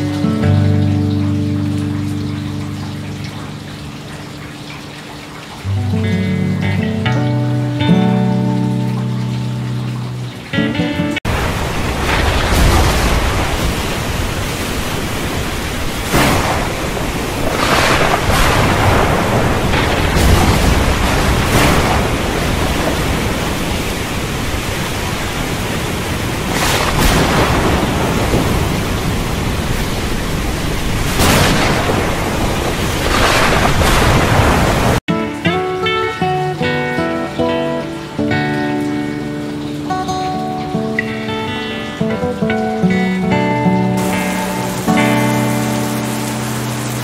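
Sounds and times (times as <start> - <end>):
heavy rain: 0.0 - 47.0
sharp thunder cracks: 11.3 - 24.6, 25.2 - 35.0
low thunder rumble: 11.3 - 35.0.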